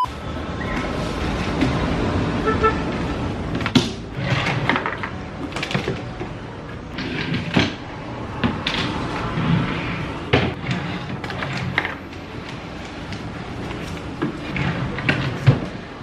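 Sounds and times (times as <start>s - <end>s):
drawer sliding open: 3.5s - 7.8s, 8.4s - 16.0s.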